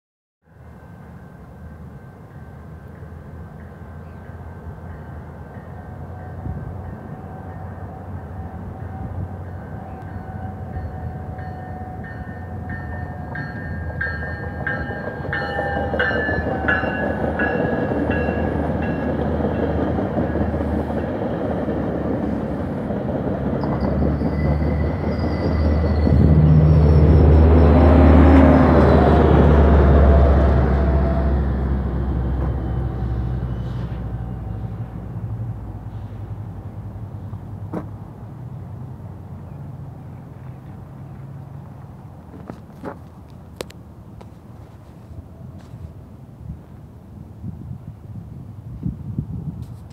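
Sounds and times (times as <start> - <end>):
deep locomotive engine drone: 0.4 - 44.6
train passing at speed: 0.4 - 49.9
train wheels going by: 0.6 - 48.0.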